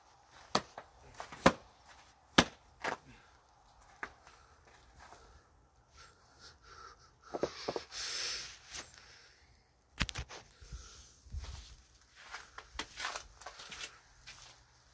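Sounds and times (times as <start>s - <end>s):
short breathy hiss: 7.5s - 9.3s.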